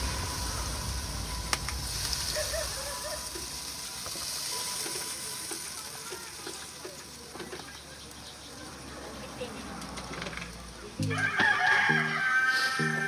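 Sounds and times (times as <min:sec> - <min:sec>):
water pouring and splashing: 0:00.0 - 0:08.2.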